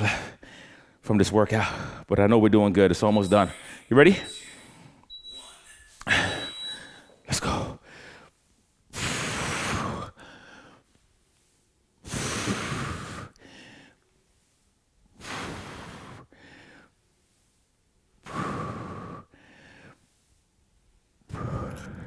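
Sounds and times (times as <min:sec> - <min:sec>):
man breathing hard: 0:00.0 - 0:01.0, 0:09.0 - 0:10.9, 0:18.2 - 0:20.4.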